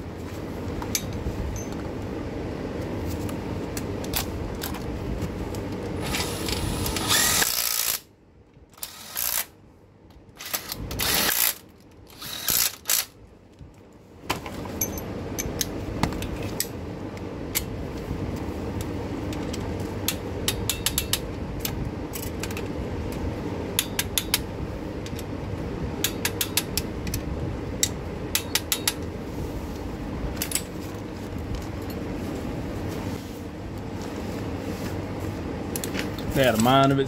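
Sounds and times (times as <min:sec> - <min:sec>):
steady background hum: 0:00.0 - 0:37.0.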